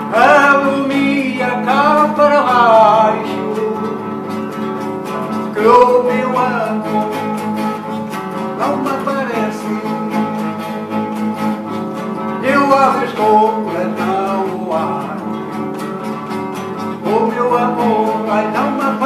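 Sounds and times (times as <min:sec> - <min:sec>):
man singing: 0:00.0 - 0:04.2, 0:05.3 - 0:07.8, 0:08.5 - 0:10.6, 0:12.4 - 0:15.4, 0:16.9 - 0:19.0
strummed classical guitar: 0:00.0 - 0:19.0.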